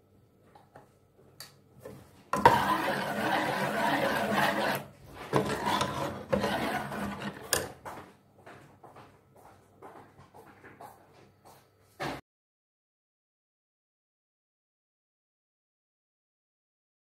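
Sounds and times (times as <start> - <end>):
spoon scraping pot bottom: 2.4 - 7.8.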